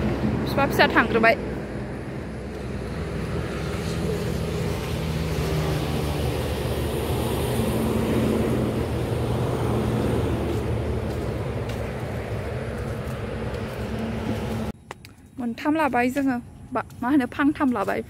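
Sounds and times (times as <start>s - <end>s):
engine drone: 0.0s - 15.4s.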